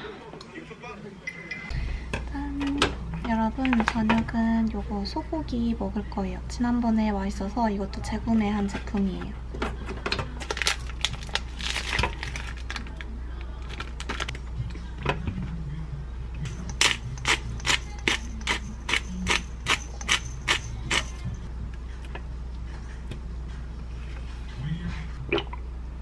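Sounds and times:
plastic packaging crackling: 0:10.4 - 0:14.3
pepper grinder clicking: 0:16.6 - 0:21.2.

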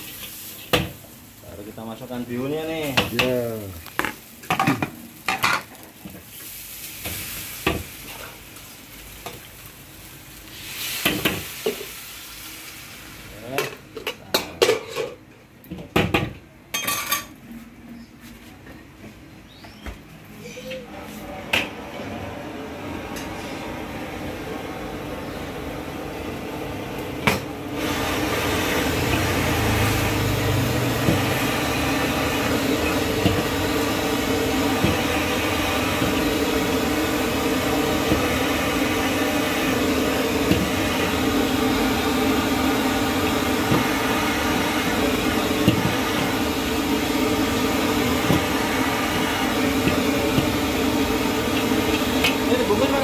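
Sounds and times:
noodles hissing in a wok: 0:00.0 - 0:04.4, 0:05.0 - 0:13.6, 0:27.8 - 0:53.0.

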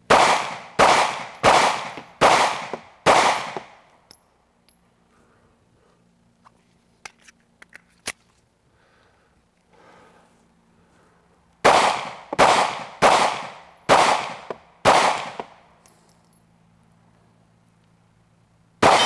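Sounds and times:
pistol shots: 0:00.1 - 0:03.8, 0:11.6 - 0:15.6, 0:18.8 - 0:19.0
ringing echo of gunshots: 0:00.1 - 0:03.8, 0:11.6 - 0:15.5, 0:18.8 - 0:19.0.

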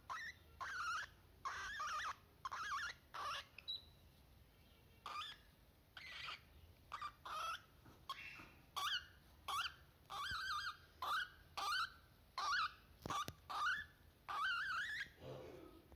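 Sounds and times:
cockatiel chirping: 0:00.0 - 0:04.0, 0:04.6 - 0:15.2.

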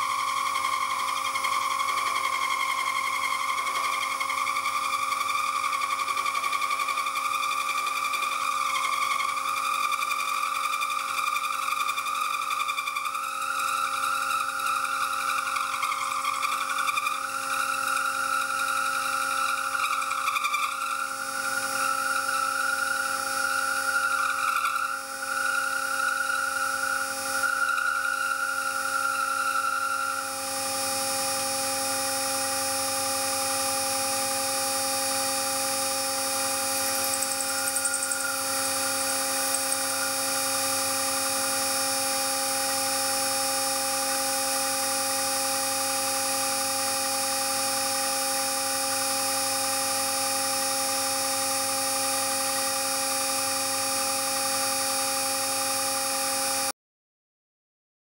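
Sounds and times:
end mill cutting whine: 0:11.8 - 0:56.7
milling machine hum: 0:31.1 - 0:43.6.

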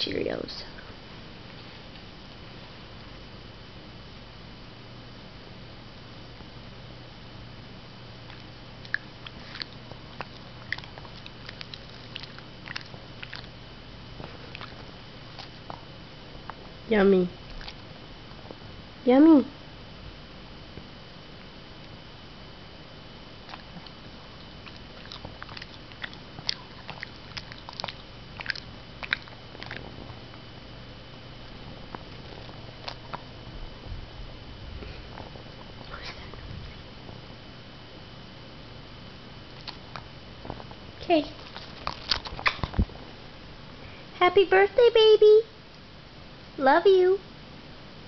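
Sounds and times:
dog chewing crunchy food: 0:08.2 - 0:16.7, 0:17.4 - 0:18.6, 0:23.4 - 0:36.9, 0:39.5 - 0:43.3.

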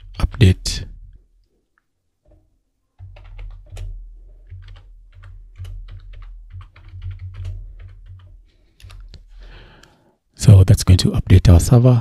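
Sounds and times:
typing on computer keyboard: 0:03.0 - 0:09.2.

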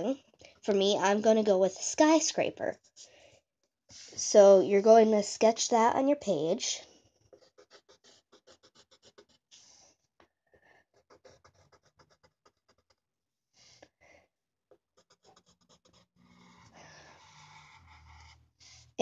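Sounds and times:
pencil scratching on paper: 0:00.1 - 0:03.3, 0:07.0 - 0:10.0, 0:10.8 - 0:13.0, 0:14.7 - 0:19.0.

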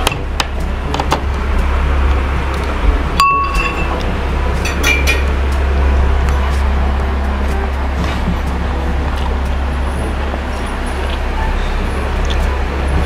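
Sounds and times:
steady low hum: 0:00.0 - 0:13.0
cutlery clinking on plate: 0:04.6 - 0:05.3.

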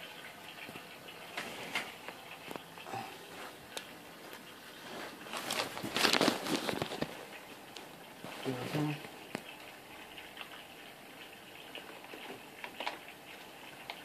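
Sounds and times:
rustling and scraping: 0:03.3 - 0:07.3.

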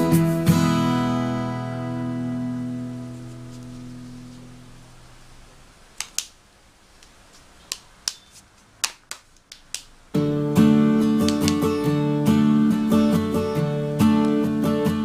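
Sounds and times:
instrumental background music: 0:10.2 - 0:15.0
sharp clicks: 0:11.1 - 0:11.8.

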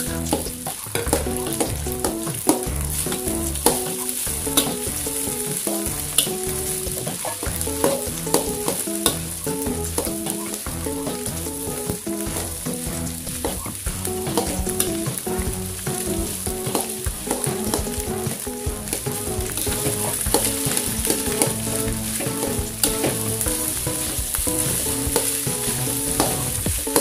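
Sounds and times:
spatula scraping and knocking pan: 0:00.0 - 0:27.0
rice sizzling in wok: 0:00.8 - 0:13.3, 0:14.0 - 0:27.0.

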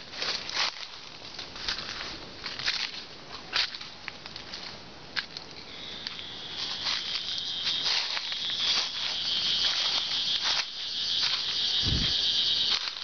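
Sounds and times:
footsteps on dry leaves: 0:00.0 - 0:04.8, 0:06.2 - 0:13.0
high-pitched insect drone: 0:05.7 - 0:13.0.

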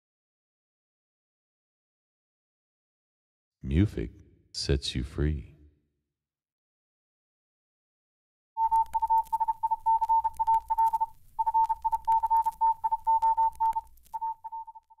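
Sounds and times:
morse code beeping: 0:08.6 - 0:15.0
static crackle: 0:08.6 - 0:15.0.

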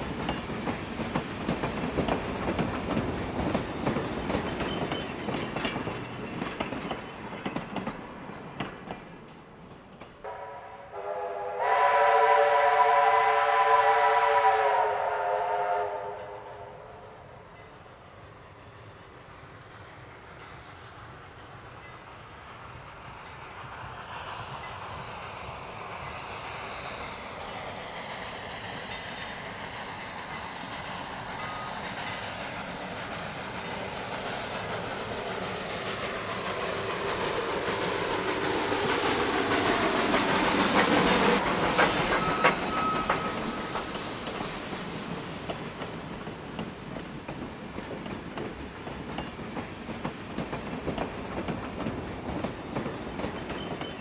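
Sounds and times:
steam train running: 0:00.0 - 0:54.0
steam locomotive whistle: 0:10.2 - 0:17.1, 0:40.9 - 0:44.1.

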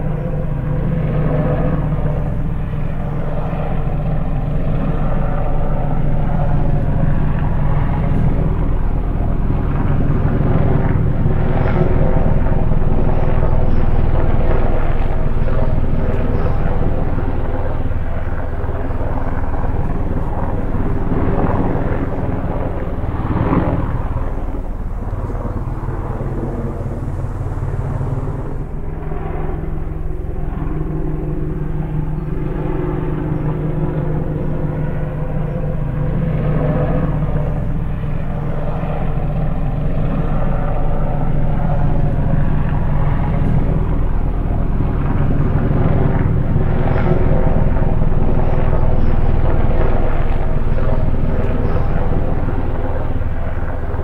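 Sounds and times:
aircraft propeller hum: 0:00.0 - 0:54.0.

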